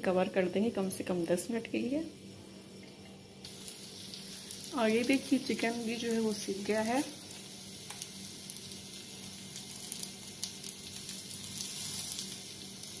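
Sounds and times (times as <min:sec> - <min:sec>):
meat sizzling in oil: 0:03.4 - 0:13.0.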